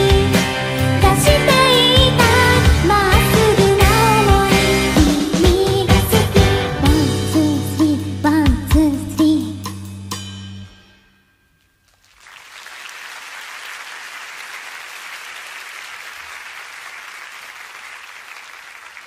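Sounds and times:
audience applause: 12.0s - 19.0s.

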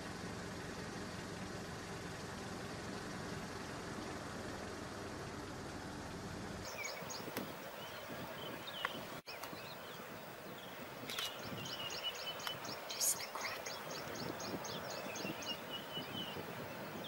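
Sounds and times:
birds whistling: 6.6s - 17.0s
high repeated bird chirps: 10.6s - 17.0s.

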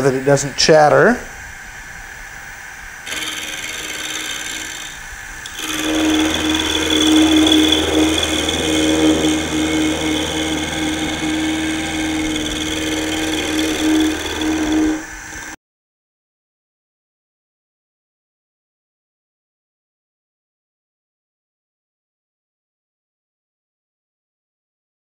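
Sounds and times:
steady machine hum: 0.0s - 15.6s
milling machine cutting metal: 3.1s - 15.6s.

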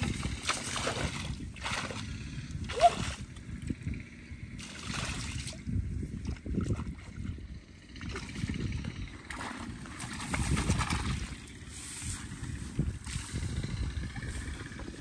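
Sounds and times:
splashing in muddy water: 0.0s - 15.0s.

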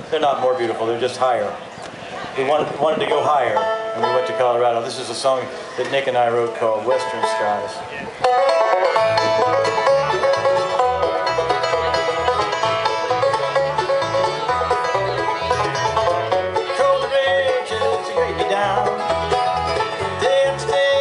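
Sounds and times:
mandolin: 2.8s - 21.0s
banjo picking: 2.9s - 21.0s
acoustic guitar: 3.0s - 21.0s
bass line: 8.0s - 21.0s.

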